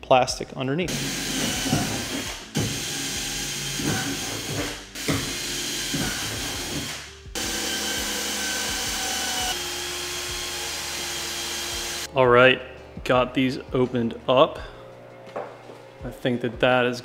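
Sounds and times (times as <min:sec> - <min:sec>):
cordless drill whining: 0:00.9 - 0:12.1.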